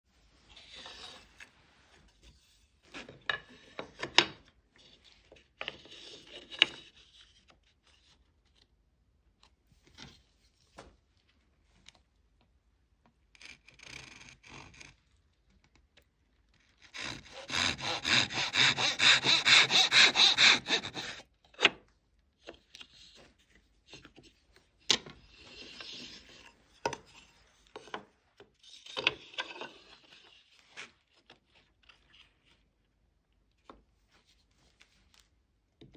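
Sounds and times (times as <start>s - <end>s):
pull saw rasping through wood: 16.8s - 21.3s.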